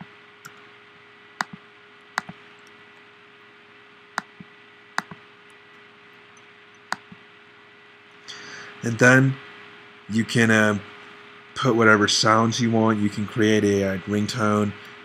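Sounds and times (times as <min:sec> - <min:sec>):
faint steady hum and hiss: 0:00.0 - 0:15.0
computer mouse clicks: 0:01.4 - 0:01.6, 0:02.2 - 0:02.8, 0:04.2 - 0:05.2, 0:06.9 - 0:07.2.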